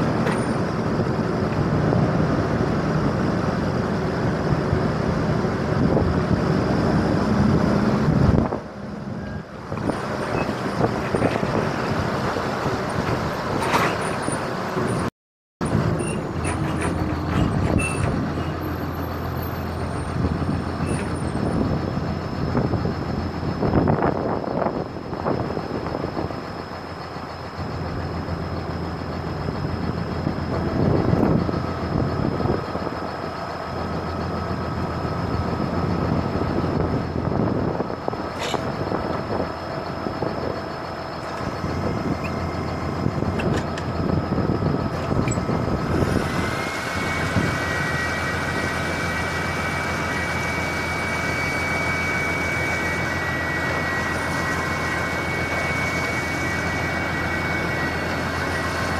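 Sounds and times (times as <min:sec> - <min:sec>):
truck engine running: 0:00.0 - 0:58.9.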